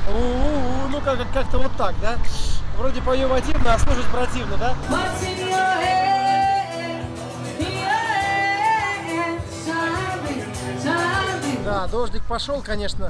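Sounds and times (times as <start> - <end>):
acoustic guitar strumming: 4.8 - 11.6
woman singing: 4.9 - 11.6.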